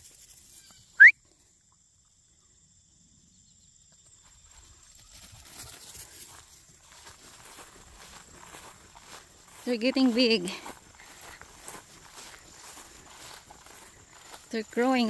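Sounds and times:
footsteps through grass: 4.2 - 15.0.

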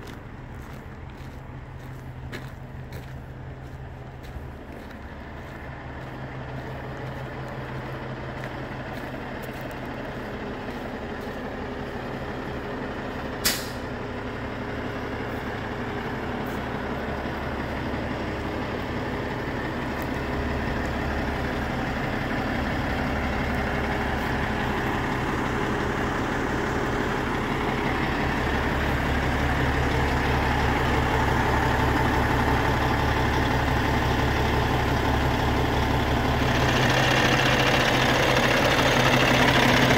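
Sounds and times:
diesel engine idling: 0.0 - 39.9
air release hiss: 13.4 - 13.8.

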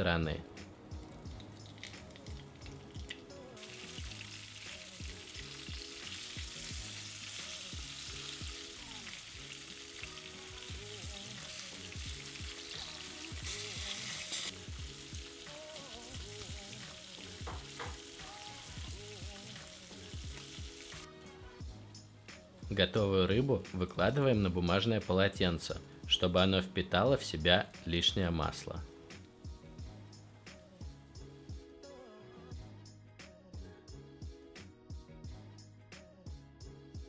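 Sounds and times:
fish frying in oil: 1.0 - 21.1.

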